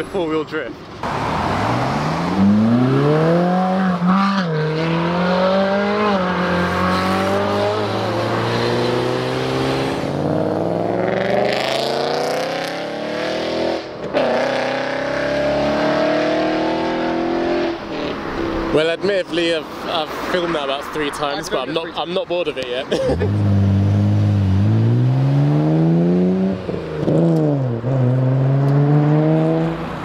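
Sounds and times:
sports cars accelerating hard: 1.0s - 18.4s, 23.1s - 30.0s.

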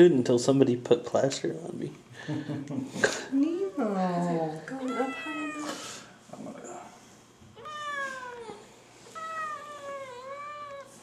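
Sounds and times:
cat meowing in distress: 7.6s - 11.0s.

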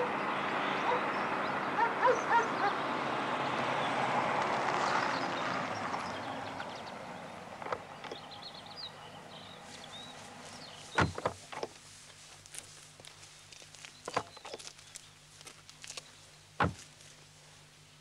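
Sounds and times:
car driving up and stopping: 3.0s - 11.8s.

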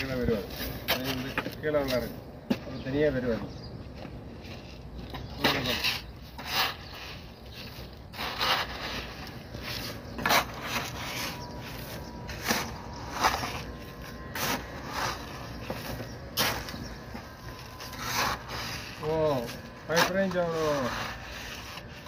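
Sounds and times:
hoe scraping through gravelly soil: 4.5s - 22.0s.

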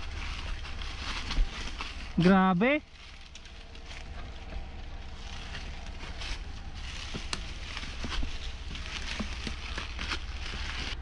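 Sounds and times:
low microphone rumble: 0.0s - 11.0s
tyre and wind noise: 0.0s - 11.0s
bike rattling over bumps: 2.9s - 11.0s.

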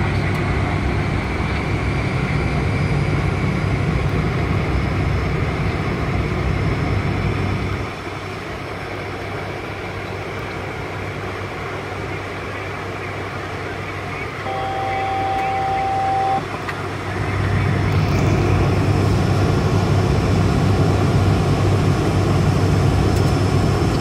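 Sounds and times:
turboprop engines droning: 0.0s - 24.0s.

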